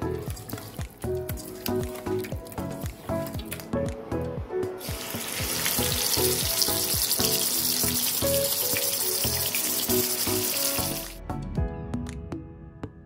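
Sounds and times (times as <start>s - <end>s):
background music with a beat: 0.0s - 13.0s
fish sizzling in hot oil: 4.8s - 11.2s.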